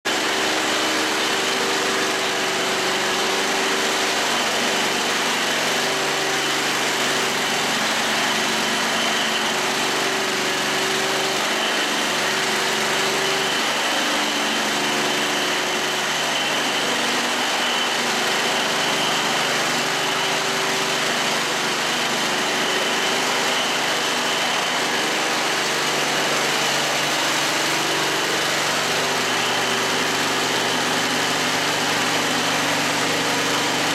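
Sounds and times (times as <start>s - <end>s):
grinding head rasping on concrete: 16.4s - 33.9s.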